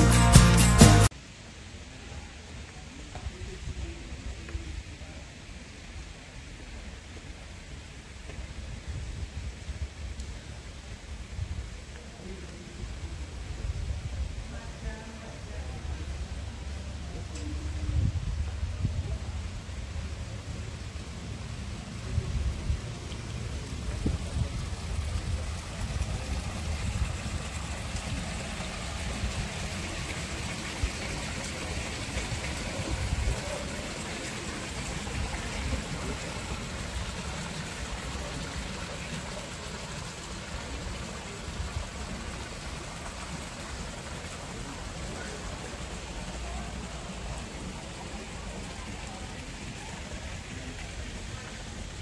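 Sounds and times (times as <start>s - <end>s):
water splashing into pool: 22.8s - 52.0s.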